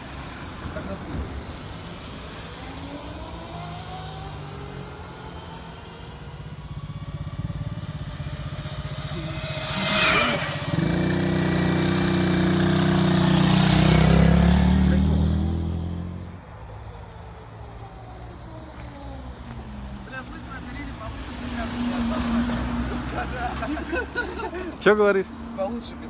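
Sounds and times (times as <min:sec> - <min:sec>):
faint rising engine tones: 0:00.0 - 0:24.3
motorcycle passing by: 0:00.0 - 0:26.0
motorcycle engine running: 0:06.3 - 0:21.7.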